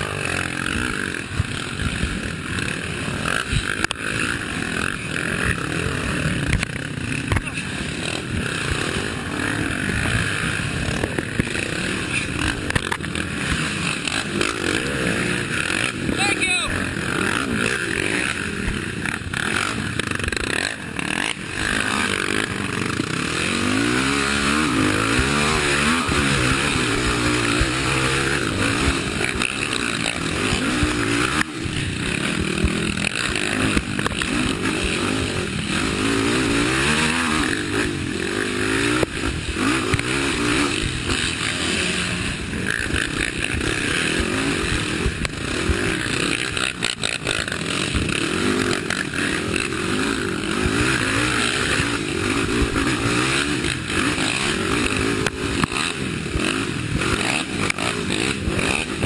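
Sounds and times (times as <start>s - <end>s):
quad engine revving: 0.0s - 59.0s.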